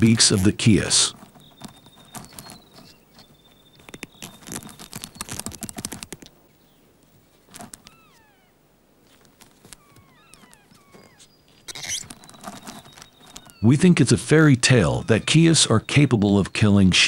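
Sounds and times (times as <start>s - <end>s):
whistled bird calls: 1.0s - 5.7s, 9.8s - 17.0s.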